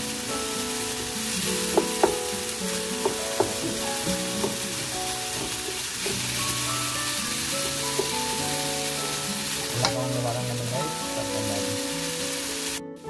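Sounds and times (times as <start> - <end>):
vegetables sizzling in oil: 0.0 - 12.8
background music with held notes: 0.0 - 13.0
wooden spatula knocking on pan: 1.6 - 2.3, 3.0 - 6.3, 7.6 - 8.2.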